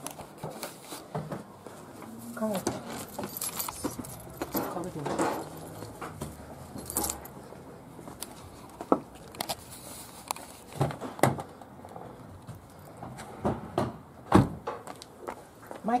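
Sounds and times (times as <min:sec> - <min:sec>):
keys clicking and knocking: 0:02.5 - 0:13.1.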